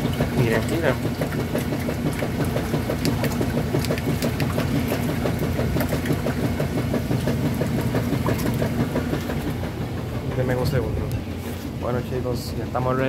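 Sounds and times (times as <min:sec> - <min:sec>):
washing machine pulsing hum: 0:00.0 - 0:13.0.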